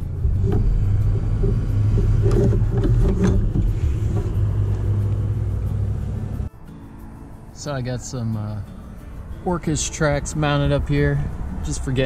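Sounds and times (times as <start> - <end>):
light knocks and rattles: 0.2 - 5.2.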